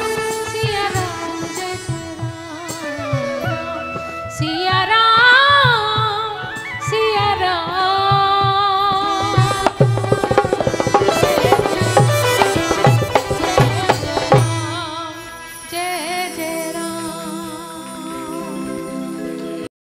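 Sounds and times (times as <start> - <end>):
woman singing devotional song: 0.0 - 19.7
hand drum beat: 8.2 - 14.8.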